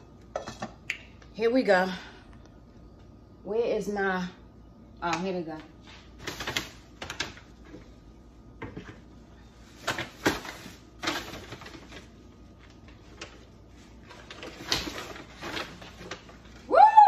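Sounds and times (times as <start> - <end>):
paper bag rustling and crinkling: 9.6 - 16.7.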